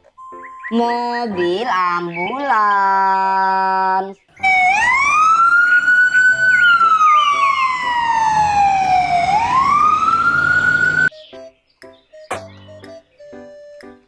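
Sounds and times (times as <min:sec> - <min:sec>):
ambulance siren wailing: 0:04.4 - 0:11.1.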